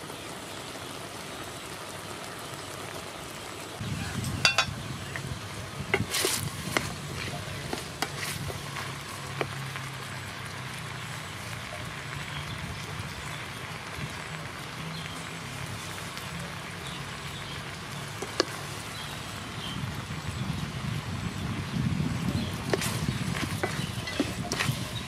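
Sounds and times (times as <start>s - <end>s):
stew boiling in a pot: 0.0s - 25.0s
wooden ladle knocking a pot: 4.4s - 4.7s.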